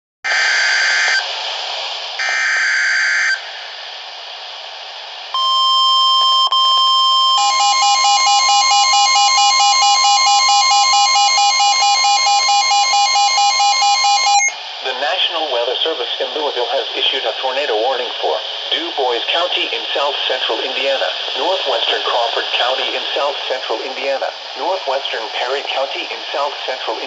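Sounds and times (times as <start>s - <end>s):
rapid alarm beeping: 5.4s - 14.6s
steady warning tone: 5.4s - 14.6s
buzzy digital alert bursts: 7.4s - 14.6s
radio hiss: 13.9s - 27.0s.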